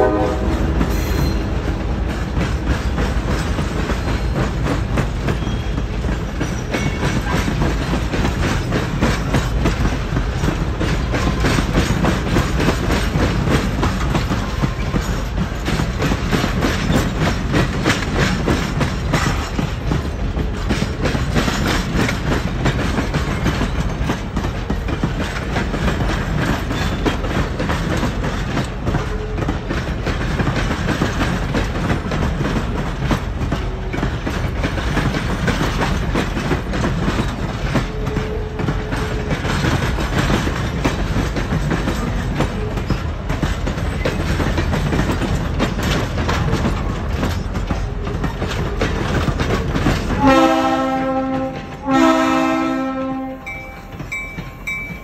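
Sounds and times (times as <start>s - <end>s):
multi-note train horn: 0.0s - 2.0s, 50.1s - 54.0s
passing train rumble: 0.0s - 55.0s
train wheels clattering over rail joints: 0.0s - 55.0s.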